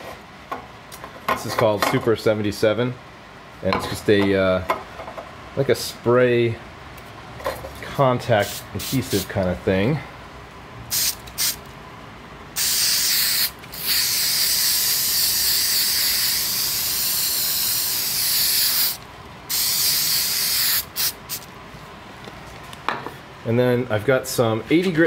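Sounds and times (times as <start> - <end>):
aerosol can spraying: 10.9 - 11.6, 12.6 - 21.5.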